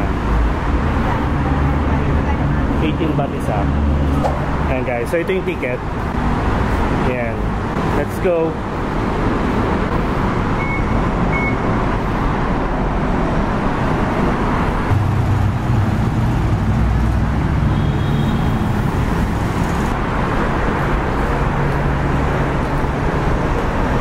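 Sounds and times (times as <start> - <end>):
road traffic noise: 0.0 - 24.0
ticket gate beeps: 10.6 - 11.6.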